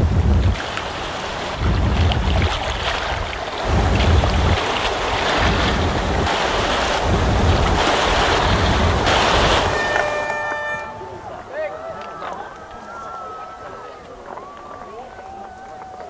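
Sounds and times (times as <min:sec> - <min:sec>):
water splashing along boat hull: 0:00.0 - 0:16.0
wind buffeting microphone: 0:00.0 - 0:16.0.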